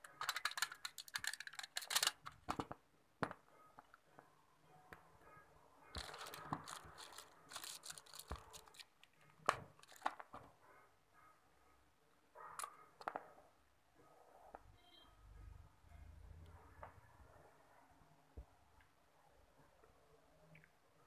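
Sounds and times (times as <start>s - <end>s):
packaging crinkling and tearing: 0.1s - 2.4s, 6.0s - 8.9s, 9.8s - 10.2s.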